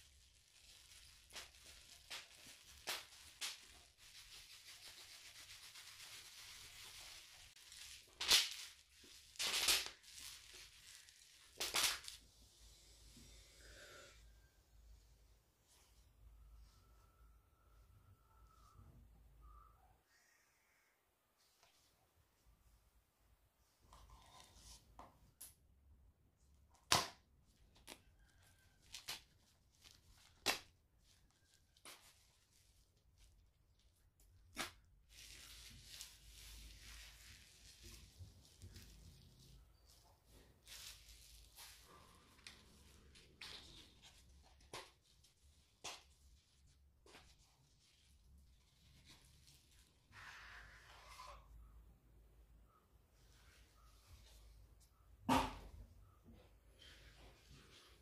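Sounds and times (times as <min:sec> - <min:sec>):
bubble wrap crunching: 0:00.0 - 0:12.2, 0:26.8 - 0:50.1
bubble wrap rustling: 0:00.0 - 0:12.3, 0:27.5 - 0:50.6.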